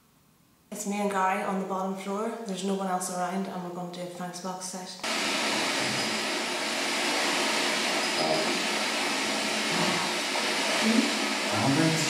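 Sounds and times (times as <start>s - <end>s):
radio static hiss: 5.0s - 12.0s.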